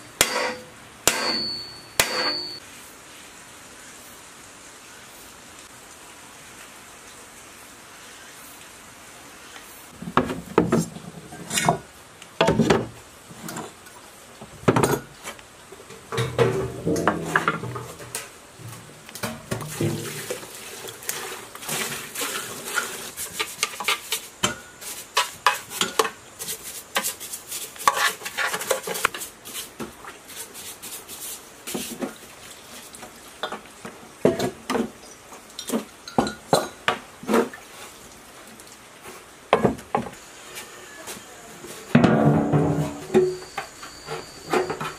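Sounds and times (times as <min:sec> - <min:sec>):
liquid splashing: 0:19.2 - 0:23.1
brush scrubbing metal: 0:19.5 - 0:32.1.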